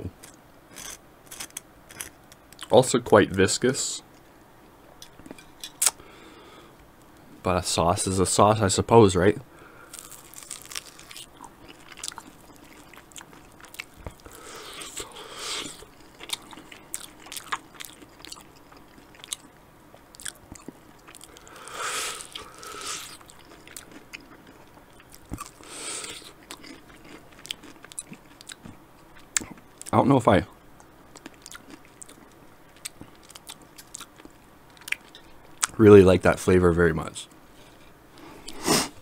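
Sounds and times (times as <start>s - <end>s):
person chewing chicken wing: 9.9s - 19.5s, 20.1s - 29.9s.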